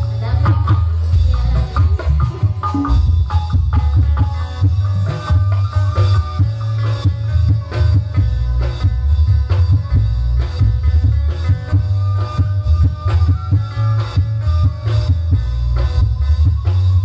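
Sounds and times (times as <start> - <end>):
drum strokes: 0.0 - 17.0
heavy boomy bass: 0.0 - 17.0.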